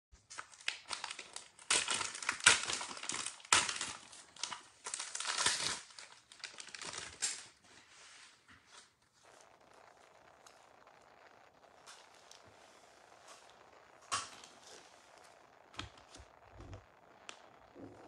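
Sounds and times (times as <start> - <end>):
packaging crinkling: 0.2 - 7.8.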